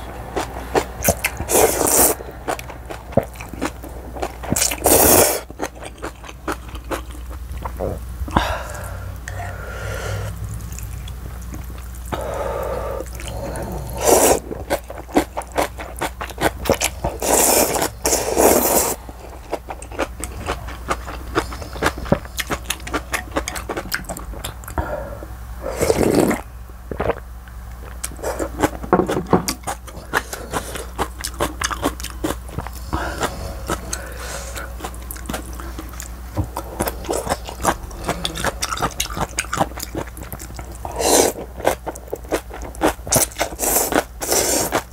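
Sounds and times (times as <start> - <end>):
slurping noodles and broth: 4.6 - 5.5, 12.2 - 14.8, 16.7 - 19.0, 25.6 - 27.2, 40.8 - 41.8, 42.8 - 44.9
wet chewing: 10.5 - 24.8, 27.8 - 44.9.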